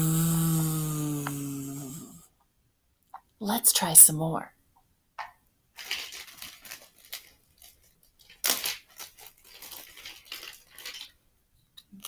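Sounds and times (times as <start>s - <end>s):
hand rummaging rustling and scraping: 5.8s - 11.2s.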